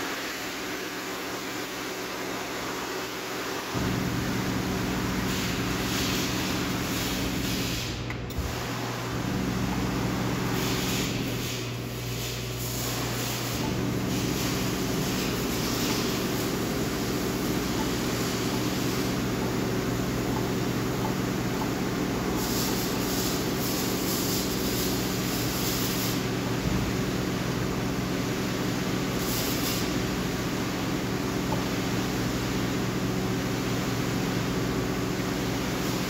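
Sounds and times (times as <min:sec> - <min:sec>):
hiss: 0:05.3 - 0:09.1, 0:10.5 - 0:19.2, 0:22.3 - 0:26.3, 0:29.2 - 0:30.1
machinery droning: 0:08.1 - 0:25.3.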